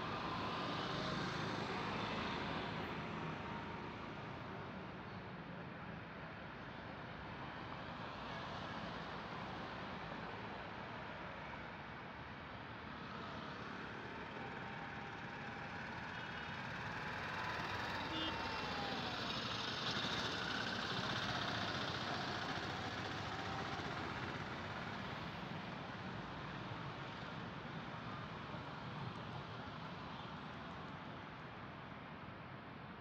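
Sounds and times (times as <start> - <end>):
auto-rickshaw driving past: 13.4 - 29.1.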